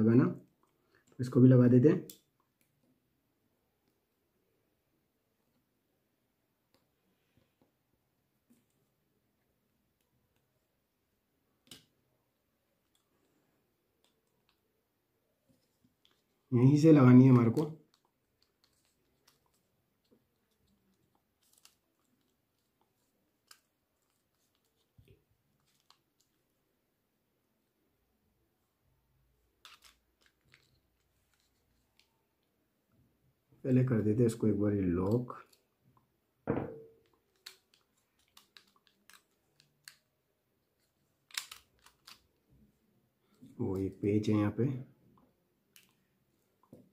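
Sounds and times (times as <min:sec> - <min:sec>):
clicks of plastic parts: 0:29.6 - 0:32.1, 0:37.0 - 0:40.1, 0:41.2 - 0:42.2.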